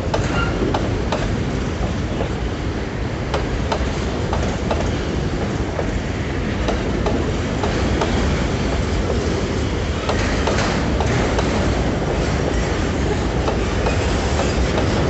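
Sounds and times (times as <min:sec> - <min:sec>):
wheels clicking over rail joints: 0:00.0 - 0:02.4, 0:06.6 - 0:15.0
freight wagons rumbling on rails: 0:00.0 - 0:15.0.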